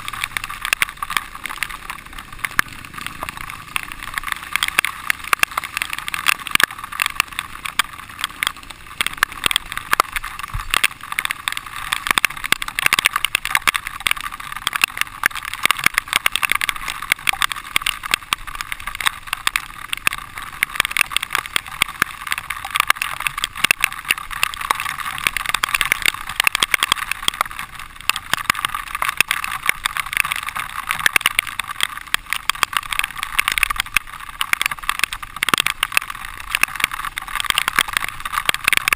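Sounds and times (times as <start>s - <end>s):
dirt bike engine running: 0.0s - 12.8s
rapid clicks and rattles: 0.0s - 38.9s.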